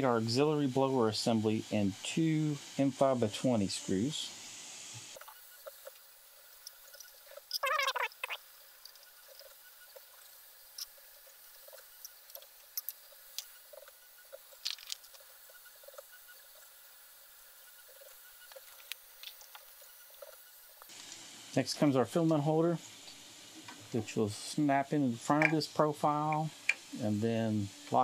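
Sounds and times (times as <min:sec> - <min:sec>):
small parts clicking and tapping: 0:05.2 - 0:16.8, 0:17.8 - 0:21.2, 0:25.3 - 0:26.9.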